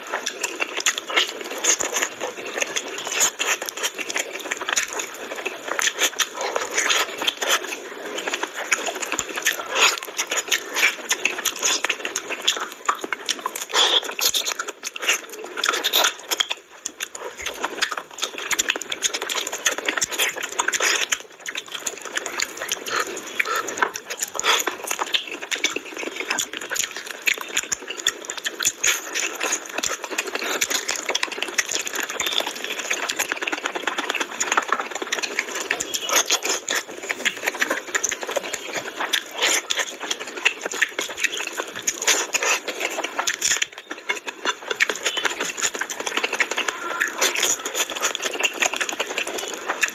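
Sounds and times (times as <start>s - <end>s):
man chewing food: 0.0s - 49.9s.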